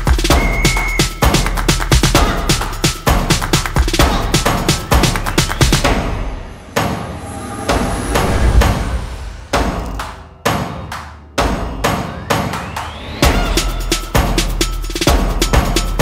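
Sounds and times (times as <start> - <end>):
heavy percussive hits: 0.0 - 12.6, 13.2 - 16.0
rising sweep: 5.5 - 10.3.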